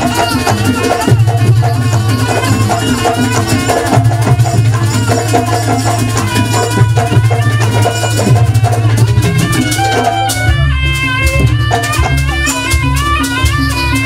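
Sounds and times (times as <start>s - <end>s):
drums and gongs playing: 0.0s - 14.0s.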